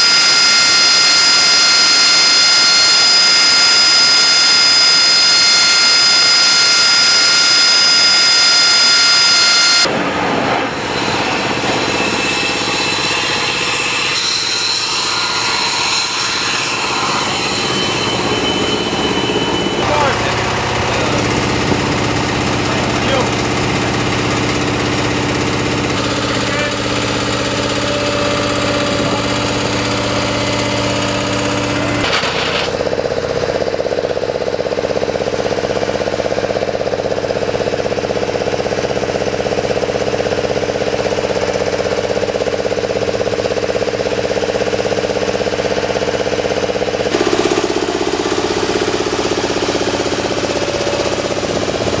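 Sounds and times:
rushing noise: 0.0 - 23.2
engines droning: 0.0 - 52.0.

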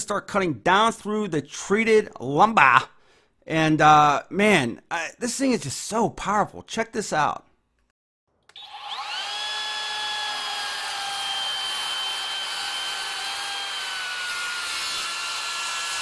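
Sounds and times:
circular saw whining: 8.5 - 16.0
saw cutting through wood: 8.5 - 16.0.

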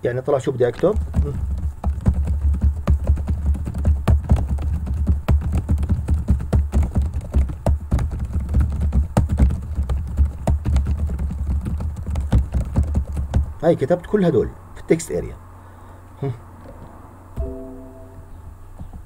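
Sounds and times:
steady low hum: 0.0 - 19.0
rapid keyboard typing: 0.8 - 13.9.

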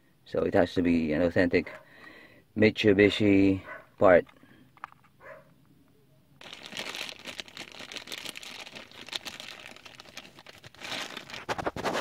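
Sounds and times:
bubble wrap crinkling: 6.4 - 12.0.

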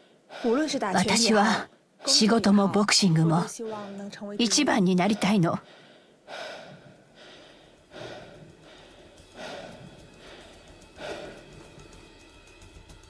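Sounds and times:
heavy breathy exhales: 5.7 - 11.9
faint background music: 6.5 - 13.0.

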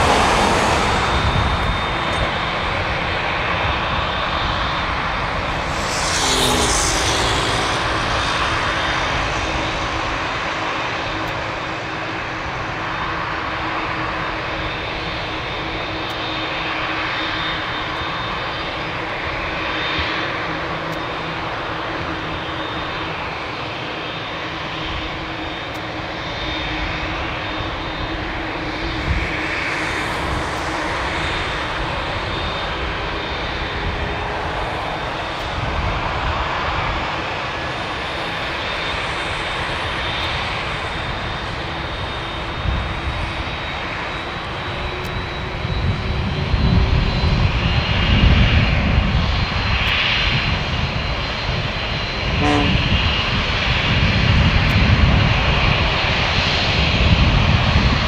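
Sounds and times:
deep rumble: 0.0 - 11.0
jet engines roaring: 0.0 - 58.0
faint high whine: 0.1 - 12.0.

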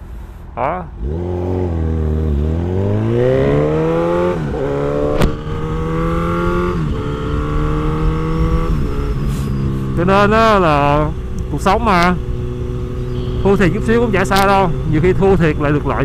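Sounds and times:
motorcycle engine accelerating: 0.9 - 16.0
sharp click: 5.1 - 5.4.

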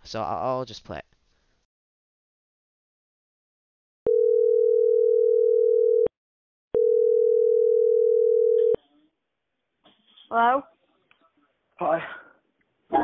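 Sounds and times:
telephone ringback tone: 4.1 - 6.1, 6.8 - 8.8.

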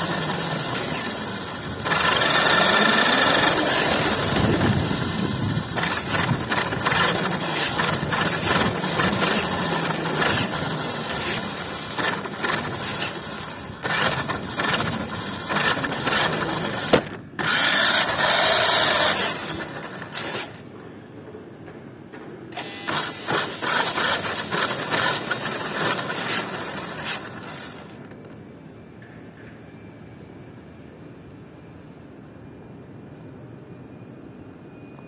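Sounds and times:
small geared motor rattling: 0.0 - 20.8, 22.6 - 28.2.

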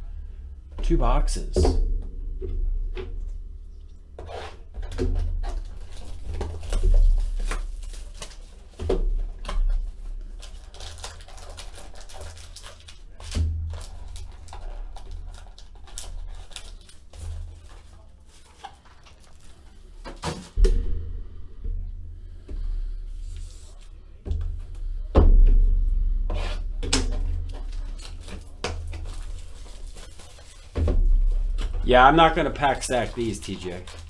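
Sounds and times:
foil wrappers crinkling: 5.3 - 20.2, 27.4 - 34.0.

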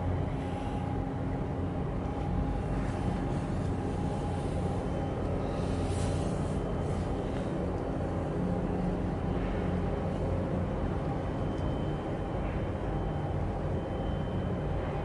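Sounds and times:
ship machinery drone: 0.0 - 15.0.

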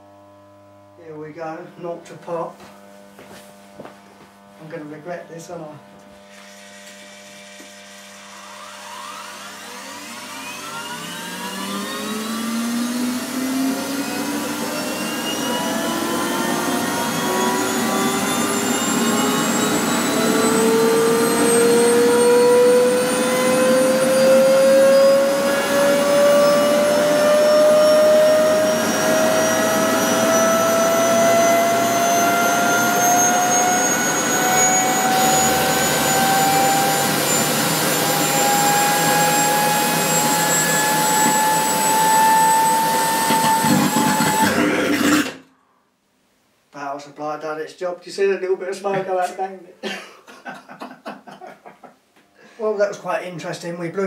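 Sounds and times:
vacuum cleaner motor whine rising: 0.0 - 1.6, 5.4 - 45.5.

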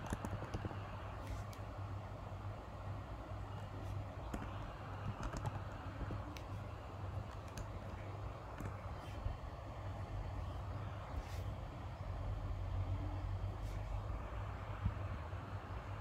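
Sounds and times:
keyboard typing clicks: 0.0 - 0.8, 4.3 - 6.6, 7.2 - 8.8
steady low hum: 0.0 - 16.0.

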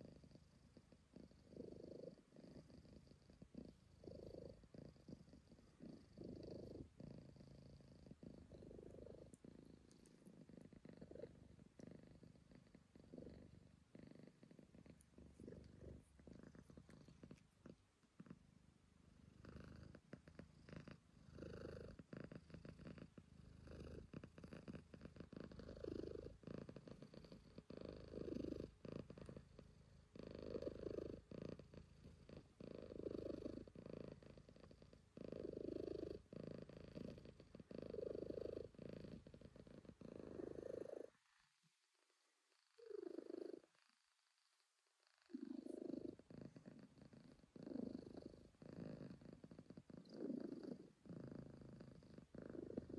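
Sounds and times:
cat purring: 0.0 - 52.9.

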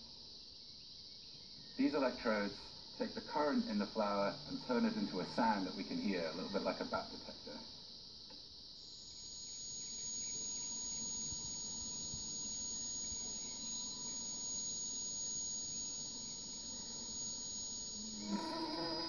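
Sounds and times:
steady high whine: 1.8 - 19.0
hiss: 16.2 - 19.0.

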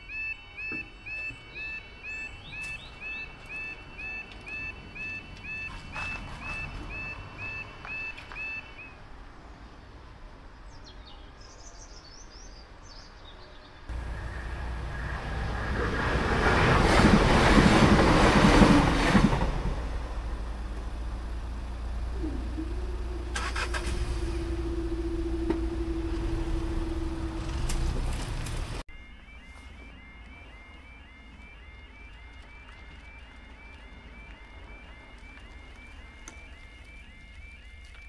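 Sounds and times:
two-tone crossing alarm: 0.0 - 9.0, 13.9 - 27.8, 28.8 - 38.0
diesel train passing: 0.0 - 10.7, 13.9 - 29.4.

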